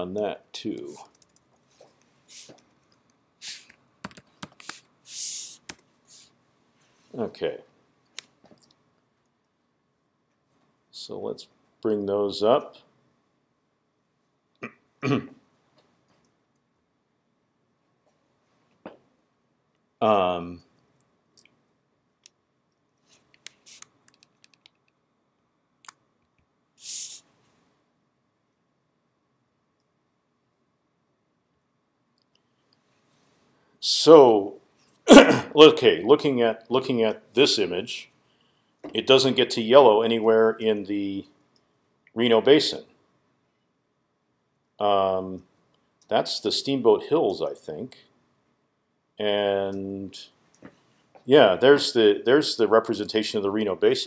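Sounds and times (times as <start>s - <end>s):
keyboard and mouse clicks: 0.8s - 1.6s, 2.5s - 4.8s, 23.2s - 25.0s
short hissing sounds: 1.7s - 2.6s, 3.4s - 3.8s, 4.6s - 7.0s, 23.0s - 24.0s, 26.8s - 27.4s
rustling hiss: 23.0s - 24.0s, 26.8s - 27.6s.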